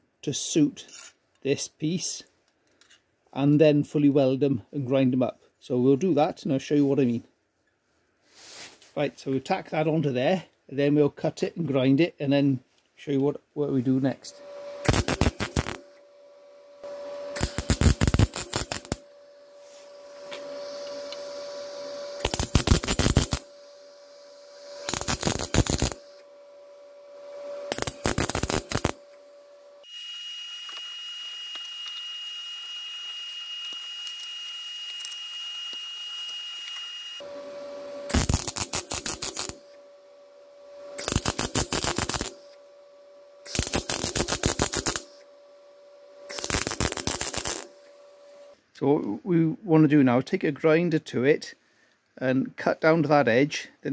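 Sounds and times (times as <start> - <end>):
steady hiss: 13.6 - 29.9, 37.2 - 48.6
high steady tone: 13.6 - 48.6
welder hum: 13.6 - 48.6
welding arc crackling: 14.0 - 29.9, 30.5 - 42.7, 43.4 - 45.3, 46.0 - 48.5.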